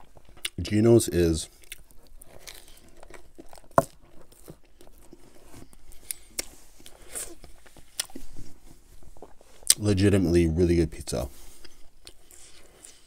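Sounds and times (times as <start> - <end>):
soft crunches of chewing: 0.0 - 0.8, 1.4 - 10.0, 11.3 - 13.0
chewing with wet mouth clicks: 0.2 - 0.6, 1.5 - 5.2.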